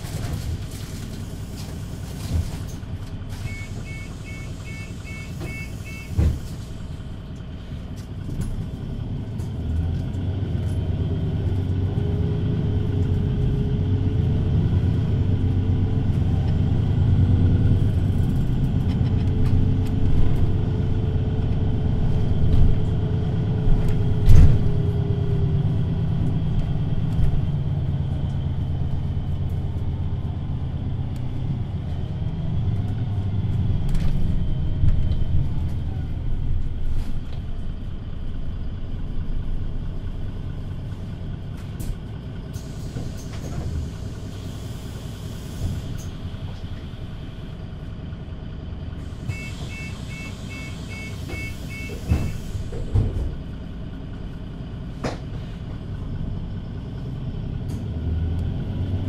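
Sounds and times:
bus diesel engine running: 0.0 - 59.0
quick beeps: 3.5 - 6.1, 49.3 - 52.4.

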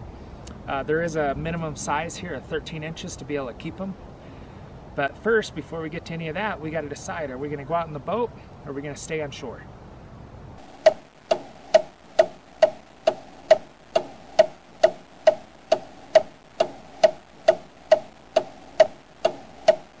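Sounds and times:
clock ticking: 10.6 - 20.0.

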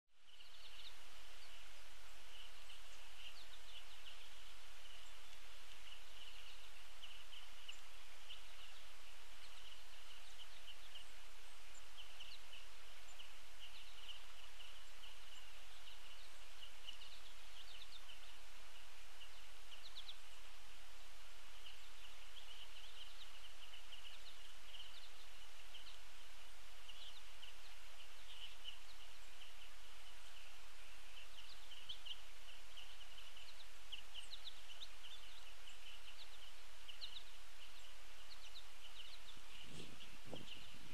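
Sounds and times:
songbirds chirping: 0.1 - 40.9
steady outdoor hiss: 0.1 - 40.9.

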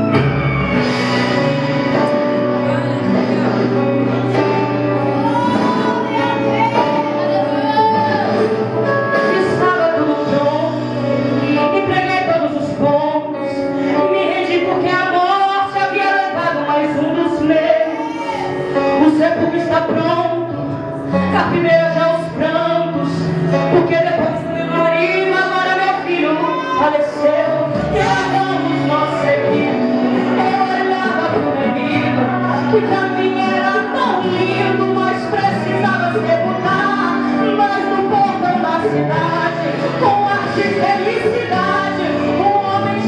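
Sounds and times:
sustained keyboard chords: 0.0 - 17.7
electric guitar: 0.0 - 43.0
woman singing into microphone: 0.0 - 43.0.

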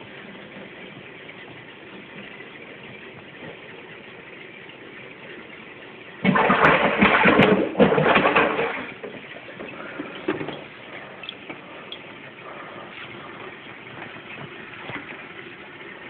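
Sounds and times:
fish splashing in water: 6.2 - 13.7.

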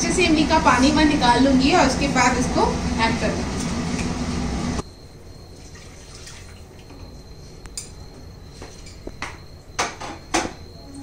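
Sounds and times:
water dripping and trickling: 5.5 - 6.9.

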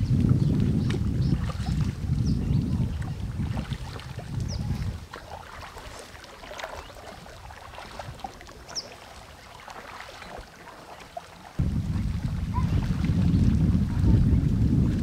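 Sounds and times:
paddle dipping into water: 0.0 - 15.0
water splashing and lapping: 0.0 - 15.0.

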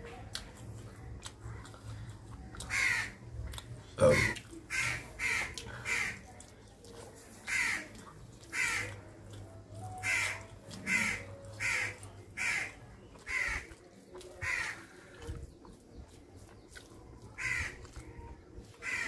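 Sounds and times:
crow cawing: 2.7 - 3.2, 4.1 - 6.2, 7.5 - 7.8, 8.5 - 8.9, 10.0 - 12.7, 13.3 - 13.7, 14.4 - 14.8, 17.4 - 17.8.

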